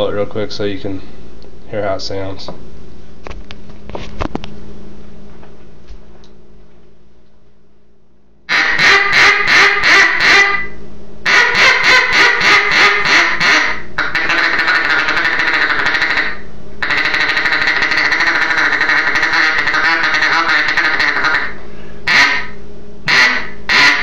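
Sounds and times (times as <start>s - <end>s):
duck call fast chatter: 8.5s - 24.0s
duck call quacks: 8.5s - 24.0s.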